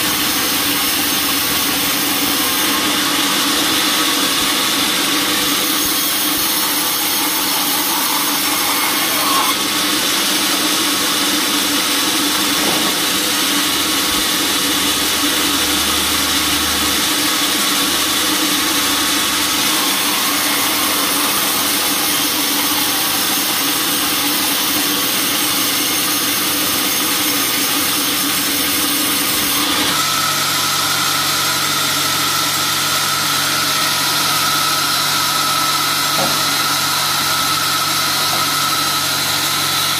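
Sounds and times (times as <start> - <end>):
band saw cutting wood: 0.0 - 39.9
machine hum: 13.1 - 26.9.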